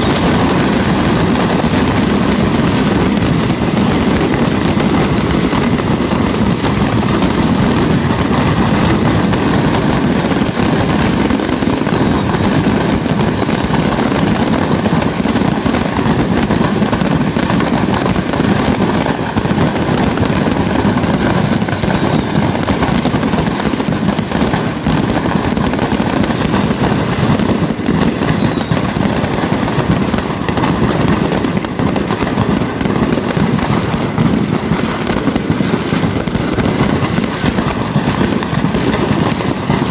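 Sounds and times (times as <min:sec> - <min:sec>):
firework whistles falling in pitch: 0:00.0 - 0:39.9
fireworks crackling bangs: 0:00.0 - 0:39.9.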